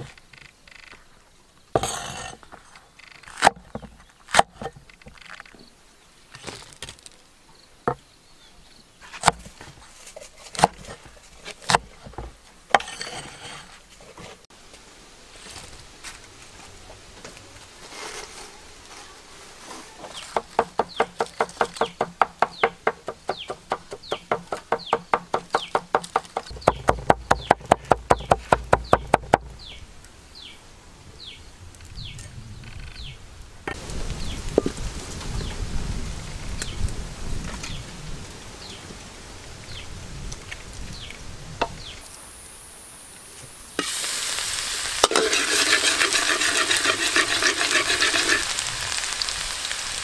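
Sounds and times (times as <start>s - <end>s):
cleaver chopping on wooden board: 20.3s - 29.6s.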